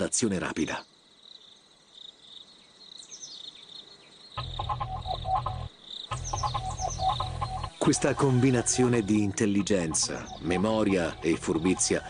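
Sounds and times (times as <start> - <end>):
rapid croaking calls: 0.6 - 12.0
high insect-like trill: 4.4 - 12.0.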